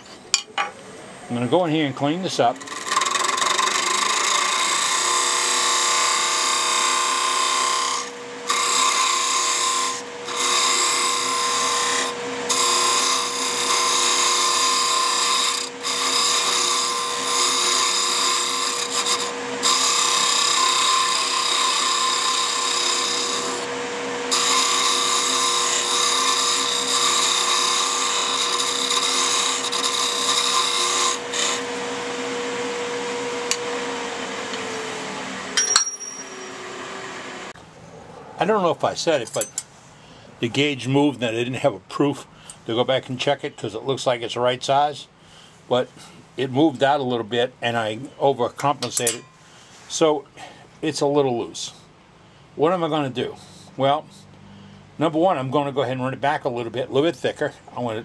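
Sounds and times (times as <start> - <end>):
wood lathe motor hum: 2.2 - 37.6
turning tool shaving wood: 2.5 - 35.4.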